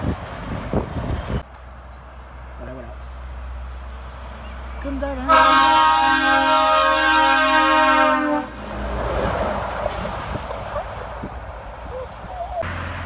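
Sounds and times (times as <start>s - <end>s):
truck passing by: 0.0s - 13.0s
truck air horn chord: 5.3s - 8.5s.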